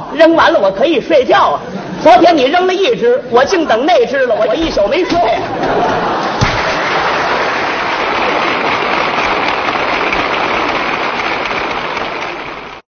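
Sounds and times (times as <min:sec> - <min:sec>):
audience applauding: 0:05.6 - 0:12.8.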